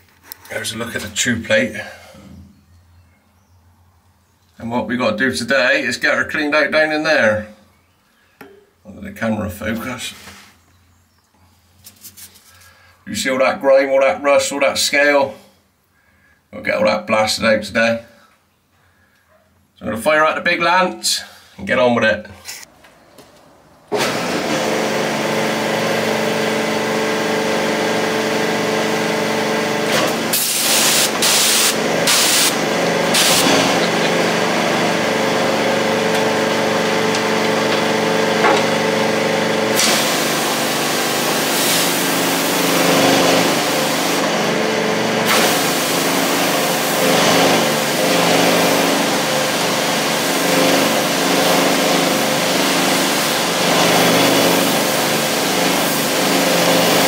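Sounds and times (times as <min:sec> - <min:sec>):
pressure washer spraying water: 0:24.0 - 0:57.0.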